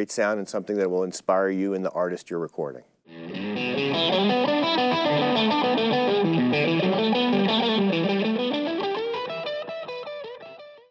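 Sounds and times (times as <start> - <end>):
distorted electric guitar: 3.1 - 10.9.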